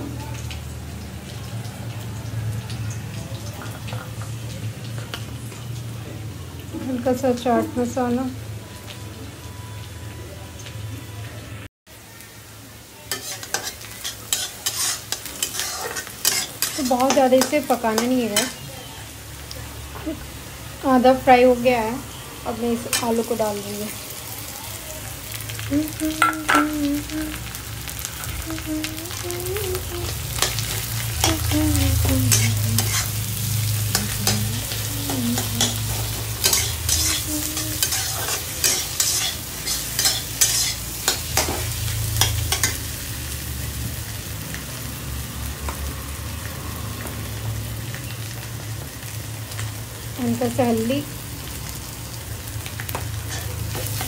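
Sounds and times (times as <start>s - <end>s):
food sizzling in oil: 0.0s - 54.0s
spatula scraping a pan: 13.1s - 18.6s, 32.3s - 33.2s, 35.1s - 42.8s.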